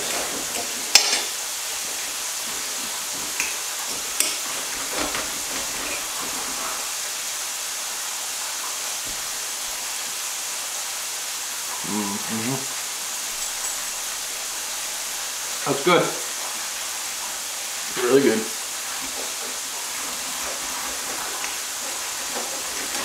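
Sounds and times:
meat frying in hot oil: 0.0 - 23.0
cutlery clinking on plates: 0.1 - 1.4, 3.4 - 6.2.

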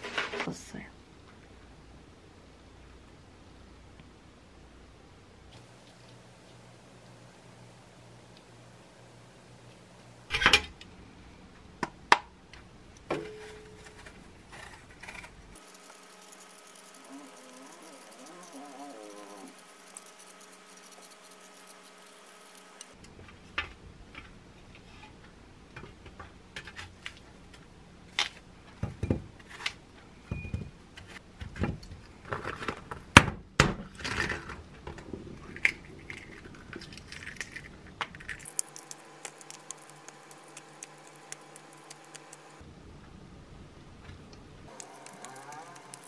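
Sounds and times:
egg shell crackling: 14.6 - 23.0, 35.6 - 42.6, 44.7 - 46.0.

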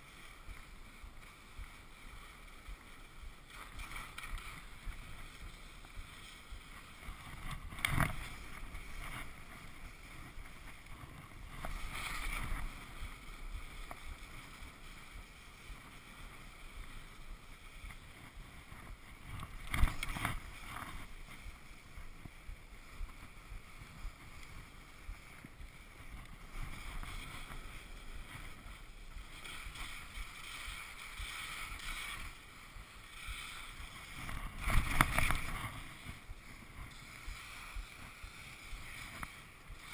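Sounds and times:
skis swishing and scraping on snow: 0.0 - 39.9
wind on the microphone: 0.0 - 39.9.

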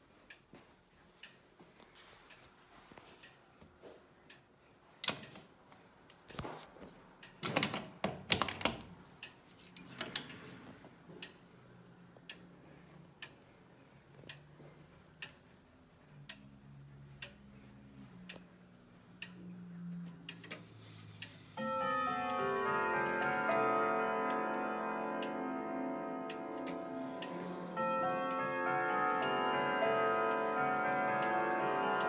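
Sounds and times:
clock ticking: 15.2 - 17.6, 18.2 - 32.0.

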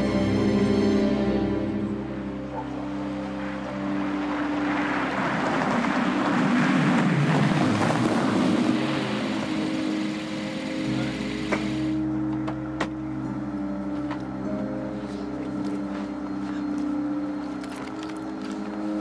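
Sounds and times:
car driving on snow: 2.4 - 12.1.

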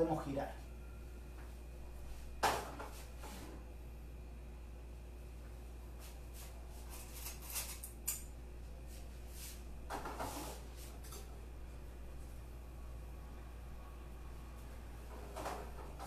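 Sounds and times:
scrape: 3.0 - 3.6, 9.3 - 11.0
utensils and pans clicking: 7.2 - 8.3.

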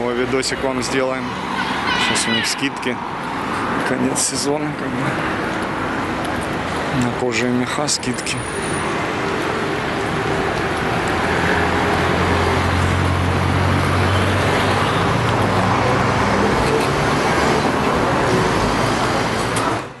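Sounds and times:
passing cars: 0.0 - 20.0
vehicle engine hum close by: 8.6 - 20.0.

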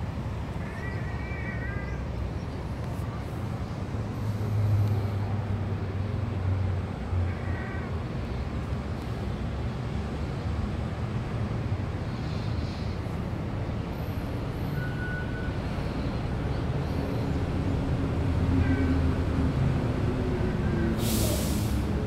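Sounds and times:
cat meowing: 0.6 - 2.0, 7.3 - 7.9.

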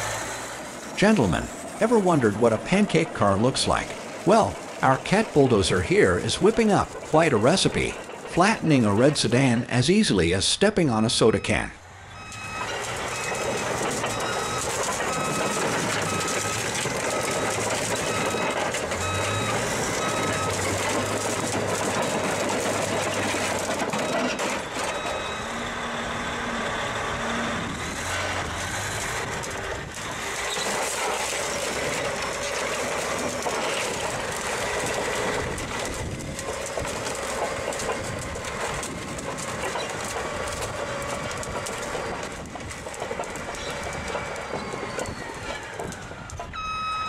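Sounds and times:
bulldozer diesel engine and tracks: 0.0 - 47.0
backup alarm beeping: 11.0 - 17.4, 18.0 - 20.8, 24.0 - 25.6, 46.5 - 47.0.

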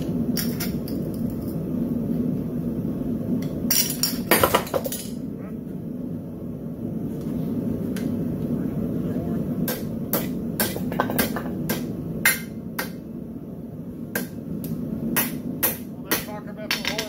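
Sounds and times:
steady low rumble: 0.0 - 17.0
hammer striking steel on anvil: 9.6 - 13.1, 14.1 - 17.0.

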